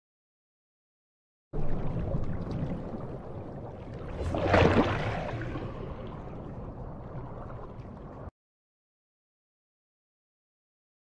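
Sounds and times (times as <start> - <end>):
rushing water swell: 1.6 - 8.3
underwater rumble and water noise: 1.6 - 8.3.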